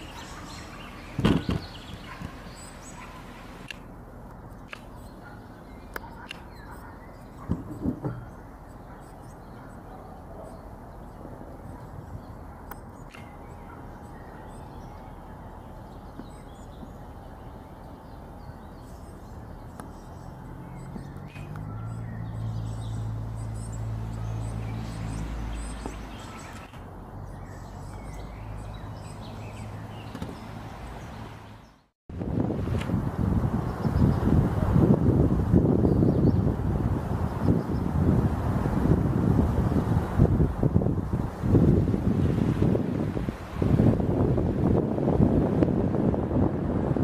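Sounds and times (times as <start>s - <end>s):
low steady engine hum: 0.0s - 47.0s
faint bird chirps: 4.4s - 31.8s.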